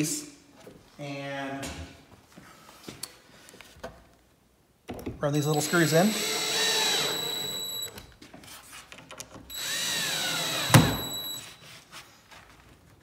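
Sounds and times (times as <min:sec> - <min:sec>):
cordless drill driving screws: 0:05.4 - 0:08.0, 0:09.5 - 0:11.4.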